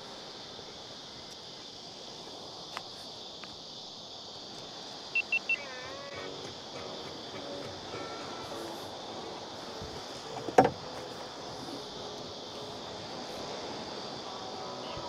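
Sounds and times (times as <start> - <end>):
steady high hiss: 0.0 - 15.0
faint ticks: 1.2 - 3.6
electronic beeps: 5.2 - 5.7.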